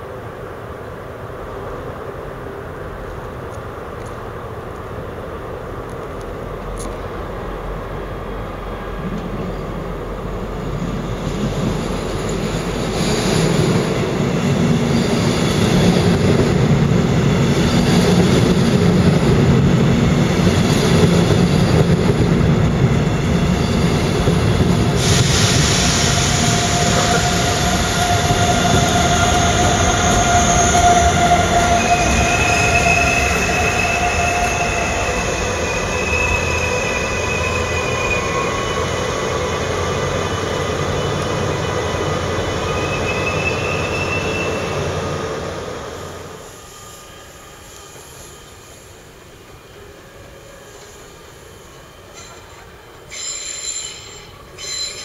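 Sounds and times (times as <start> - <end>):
train rolling past with low rumble: 0.0 - 55.0
train wheels squealing on track: 10.6 - 19.3, 20.0 - 55.0.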